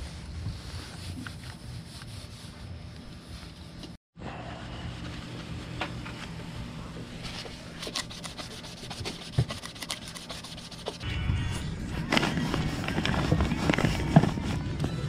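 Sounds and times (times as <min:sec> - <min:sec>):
tissue wiping plastic: 0:00.0 - 0:03.8, 0:11.9 - 0:14.6.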